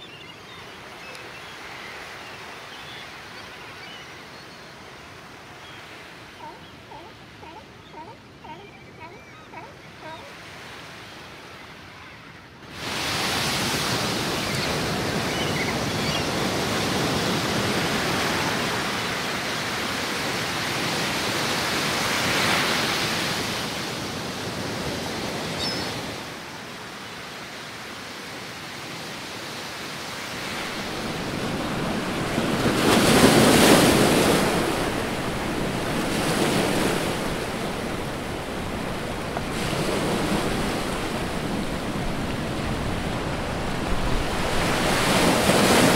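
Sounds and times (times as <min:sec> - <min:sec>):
ocean surf breaking: 0:30.0 - 0:45.9.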